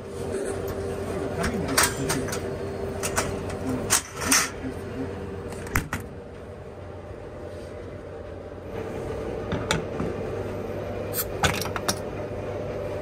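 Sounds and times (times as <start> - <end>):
vending machine hum: 0.0 - 13.0.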